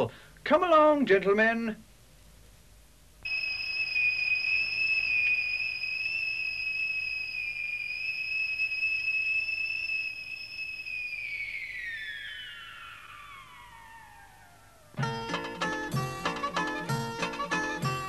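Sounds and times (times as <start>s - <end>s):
factory whistle blowing: 3.2s - 14.4s.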